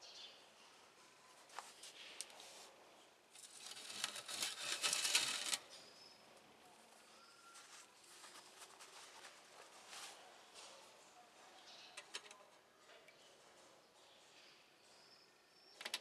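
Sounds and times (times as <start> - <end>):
metal bowl scraping on wood: 3.4 - 5.7.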